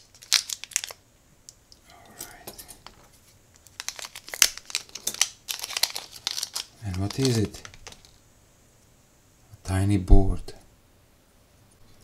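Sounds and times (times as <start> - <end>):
plastic bag crinkling and tearing: 0.0 - 1.0, 3.6 - 8.2.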